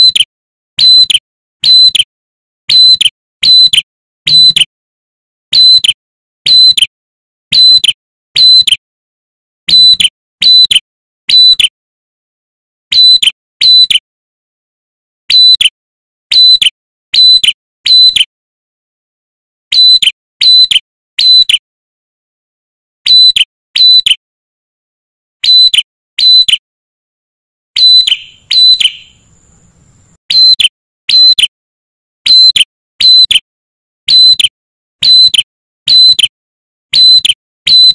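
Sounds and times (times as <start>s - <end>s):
bird calling sharp clipped notes: 0.0s - 2.1s, 2.7s - 4.7s, 5.5s - 6.9s, 7.5s - 8.8s, 9.7s - 11.7s, 12.9s - 14.0s, 15.3s - 18.3s, 19.7s - 21.6s, 23.0s - 24.2s, 25.4s - 26.6s, 27.8s - 31.5s, 32.2s - 33.4s, 34.1s - 36.3s, 36.9s - 37.9s.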